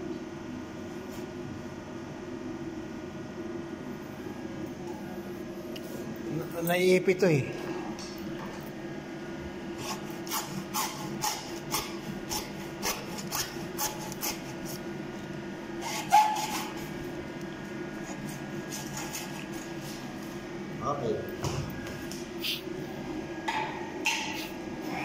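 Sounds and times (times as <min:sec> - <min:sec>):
hacksaw cutting plastic hose: 0:09.8 - 0:14.5, 0:15.8 - 0:16.7.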